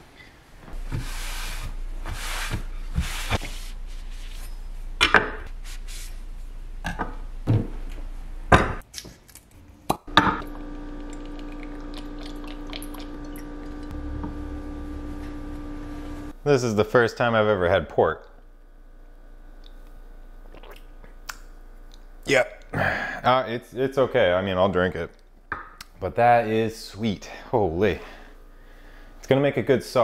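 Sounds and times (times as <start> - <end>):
cloth wiping wooden board: 0.8 - 4.4
steady hum: 10.0 - 23.4.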